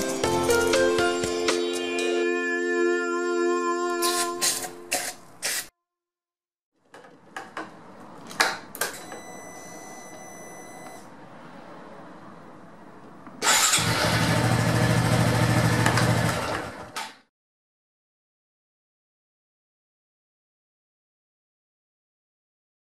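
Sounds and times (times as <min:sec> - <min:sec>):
motorcycle engine starting and running: 0:13.4 - 0:17.2.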